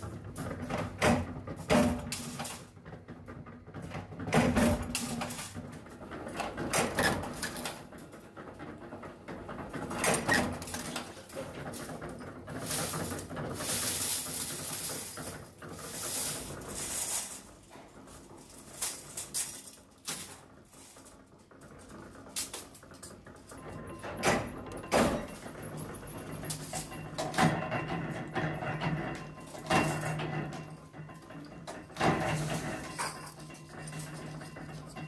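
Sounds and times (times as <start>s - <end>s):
metal scrap rattling: 9.7s - 35.0s.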